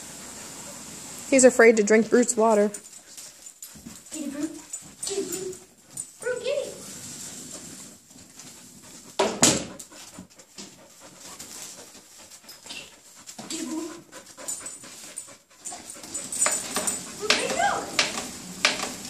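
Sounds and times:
puppy panting: 2.3 - 7.0, 7.6 - 18.0.

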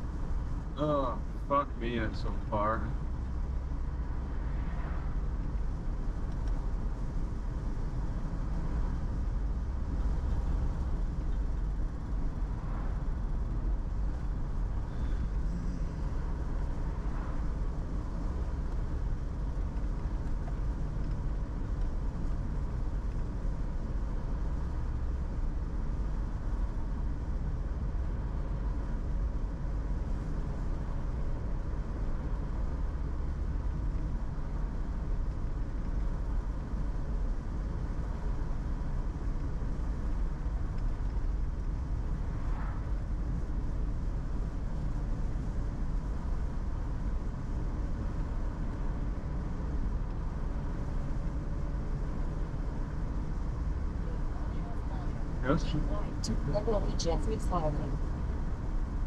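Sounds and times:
car road and engine noise: 0.0 - 59.0.

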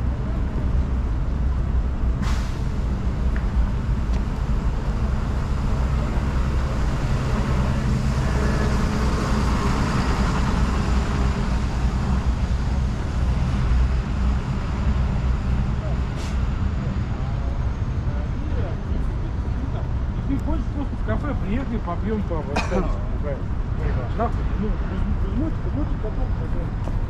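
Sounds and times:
road noise: 0.0 - 27.0
traffic engine rumble: 0.0 - 27.0
sharp short hiss: 2.2 - 2.8.

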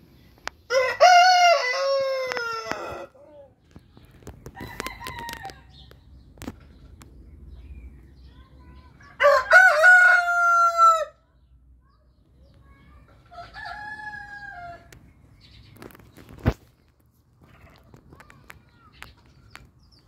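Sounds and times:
rooster crowing: 0.7 - 3.2, 9.2 - 11.2.

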